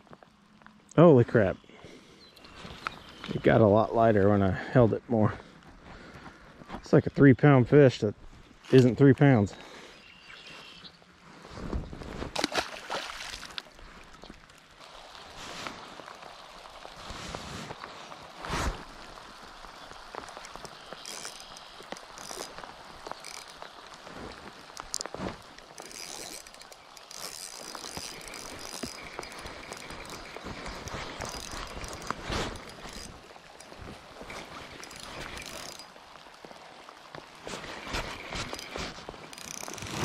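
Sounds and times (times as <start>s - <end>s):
reel handle and gears clicking: 20.2s - 36.2s, 37.4s - 40.0s
fishing reel whirring: 20.3s - 23.9s, 24.6s - 35.9s, 37.8s - 40.0s.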